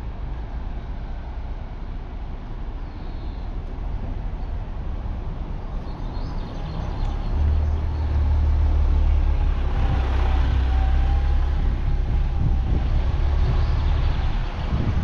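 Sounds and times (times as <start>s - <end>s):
city bus diesel engine rumble: 0.0s - 15.0s.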